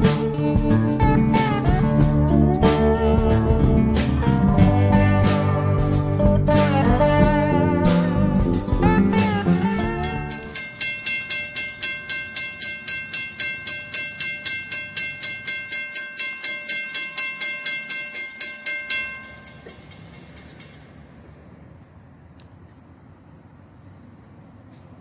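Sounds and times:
faint outdoor background: 0.0 - 25.0
railroad crossing bell ringing: 9.3 - 21.2.

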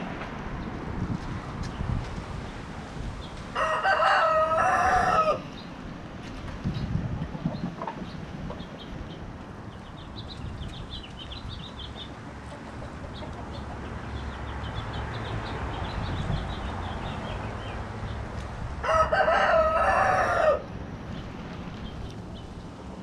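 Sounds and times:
wind rumble on microphone: 0.0 - 23.0
rooster crowing: 3.5 - 5.5, 18.8 - 20.7
small birds chirping: 5.4 - 18.5, 21.0 - 22.8.

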